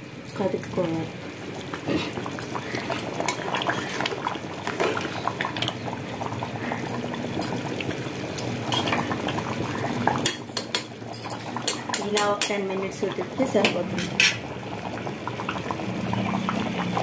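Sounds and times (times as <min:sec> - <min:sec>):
curry bubbling at a boil: 0:00.0 - 0:17.0.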